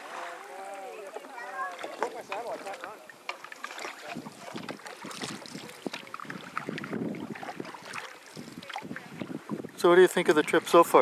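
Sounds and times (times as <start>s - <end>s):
canoe paddles in water: 0.0s - 11.0s
water splashes and drips: 0.0s - 11.0s
wind on microphone: 4.1s - 11.0s.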